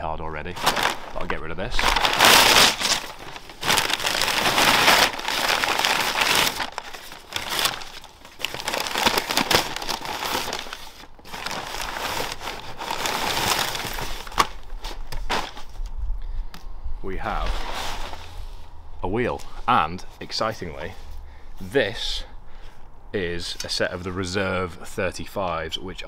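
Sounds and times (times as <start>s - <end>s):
packing paper crumpling: 0.5s - 15.9s.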